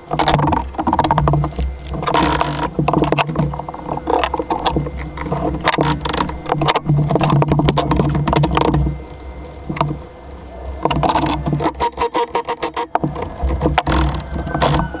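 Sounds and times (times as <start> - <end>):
steady low hum: 0.0 - 15.0
tire and wheel clanking and rattling: 0.0 - 15.0.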